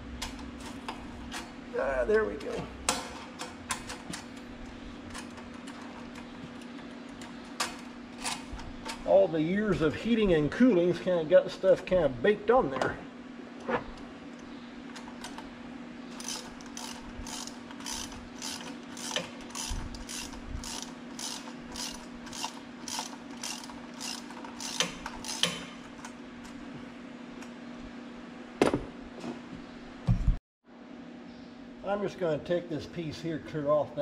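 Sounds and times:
steady low hum: 0.0s - 34.0s
hand ratchet clicking: 16.2s - 25.8s.

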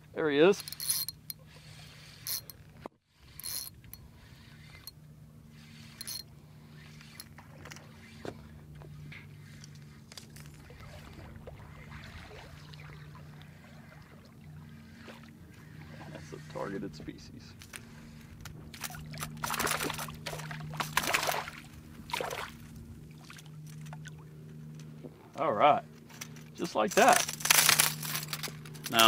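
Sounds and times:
steady low hum: 0.0s - 29.0s
fishing reel being cranked: 0.4s - 8.3s, 27.0s - 29.0s
clicks from reel and rod: 0.4s - 11.2s, 14.9s - 21.6s, 25.9s - 29.0s.

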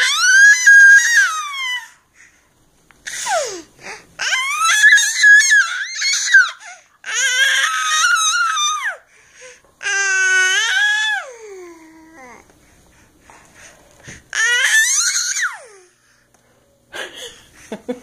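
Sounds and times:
baby squealing: 0.0s - 2.0s, 4.2s - 9.0s, 14.4s - 15.7s.

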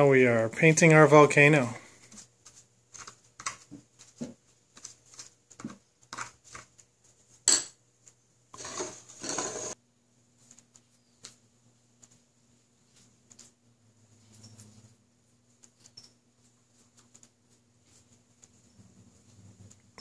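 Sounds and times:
brush scraping bowl: 8.6s - 9.8s.

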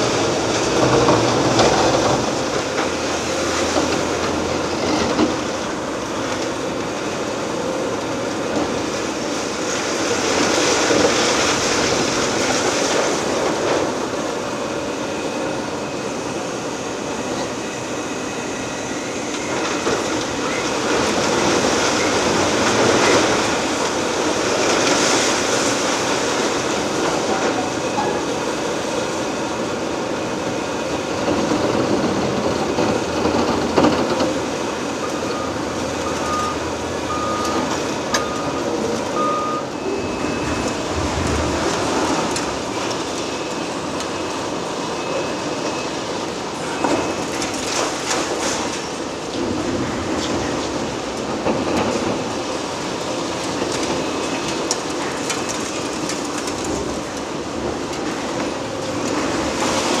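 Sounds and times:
excavator machine din: 0.0s - 60.0s
reversing beeper: 14.7s - 23.8s, 34.9s - 48.6s.

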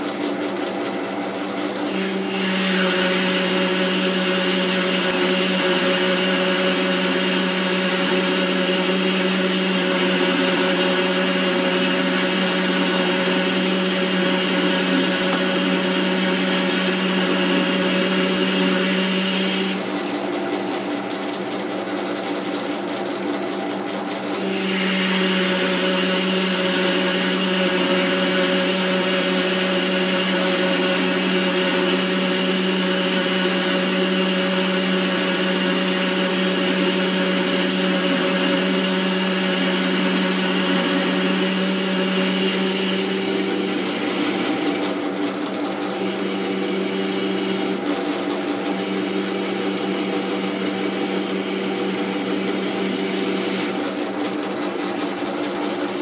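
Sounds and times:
lathe motor humming and whining: 0.0s - 56.0s
cutting tool hissing on metal: 1.9s - 20.9s, 24.3s - 45.1s, 45.9s - 47.9s, 48.5s - 53.8s.

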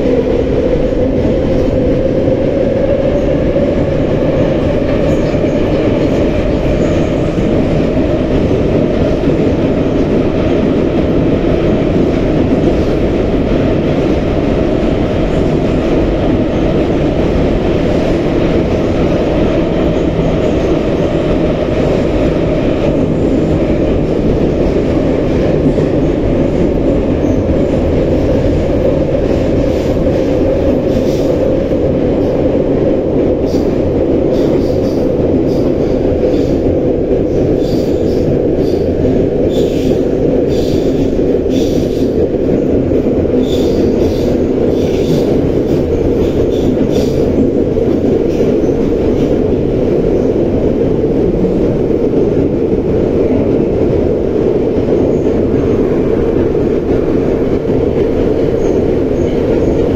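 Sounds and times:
train wheels rumbling on rails: 0.0s - 59.9s.

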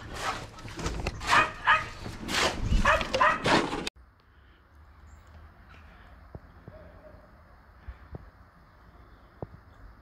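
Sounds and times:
faint outdoor background: 0.0s - 10.0s
dog barking: 1.2s - 2.0s, 2.8s - 3.5s.

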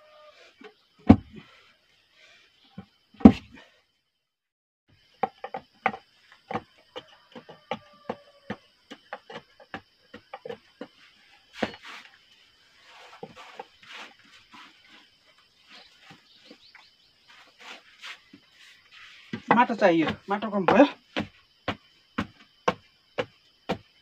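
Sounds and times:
knocks and taps packing soil: 1.0s - 1.4s, 2.8s - 3.6s, 5.1s - 12.3s, 12.9s - 15.0s, 15.7s - 24.0s
soil scraping: 11.5s - 16.6s, 17.2s - 21.3s.

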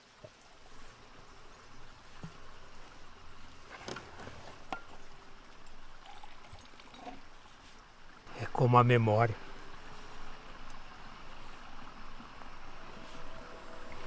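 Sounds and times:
water pouring into a mug: 5.6s - 7.3s.

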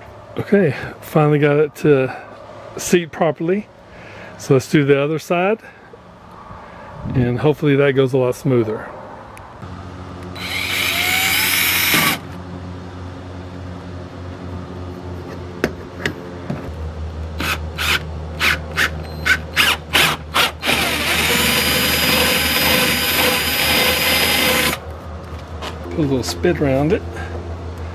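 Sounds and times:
cordless drill boring through plastic: 10.4s - 12.2s, 17.4s - 24.8s.

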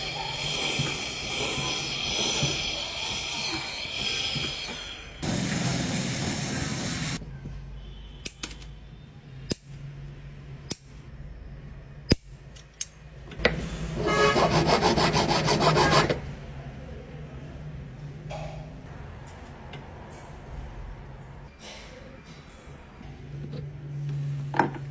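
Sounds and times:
metal rasping on abrasive: 0.0s - 5.2s
hot metal hissing in water: 0.0s - 7.2s.

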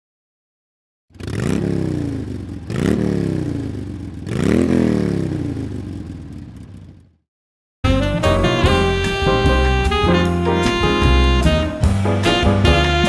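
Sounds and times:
scooter engine revving: 1.1s - 7.2s.

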